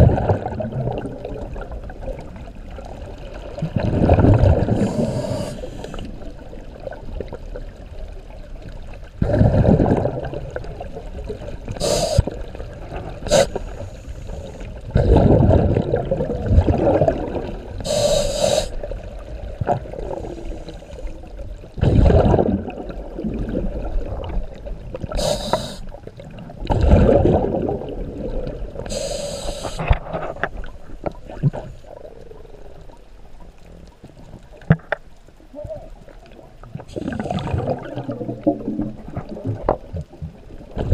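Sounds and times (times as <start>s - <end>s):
bubbling exhales: 3.5s - 6.4s, 11.7s - 19.0s, 21.8s - 30.4s, 36.7s - 39.7s
regulator hissing inhales: 4.8s - 6.1s, 11.8s - 12.4s, 13.2s - 14.7s, 17.8s - 18.8s, 25.1s - 25.9s, 28.9s - 29.9s.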